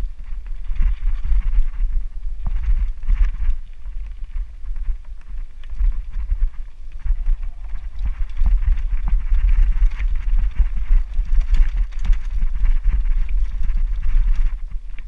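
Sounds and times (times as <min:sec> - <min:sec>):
wind buffeting microphone: 0:00.0 - 0:15.0
bike rattling and knocking: 0:07.0 - 0:14.6.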